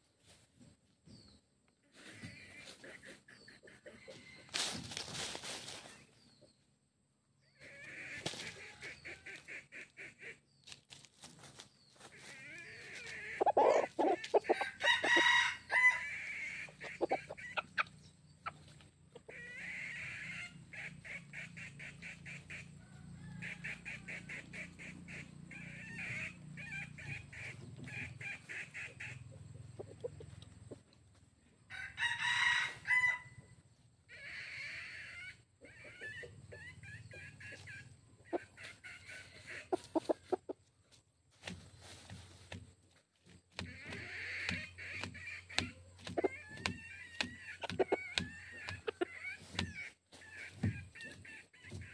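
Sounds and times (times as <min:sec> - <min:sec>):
roosters clucking: 0:00.0 - 0:51.9
rooster crowing: 0:13.6 - 0:16.3, 0:22.8 - 0:23.6, 0:31.7 - 0:33.4.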